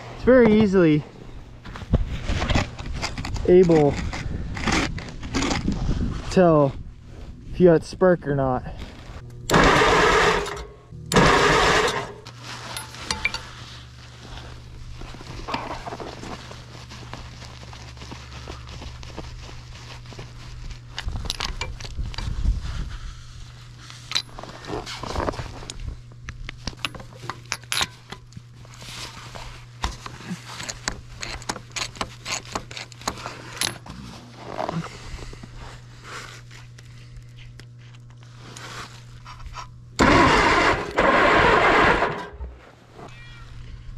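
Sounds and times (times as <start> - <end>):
steady low hum: 0.0 - 43.9
tractor engine cranking: 9.4 - 12.3, 40.0 - 42.5
metal tools clinking: 11.9 - 13.5.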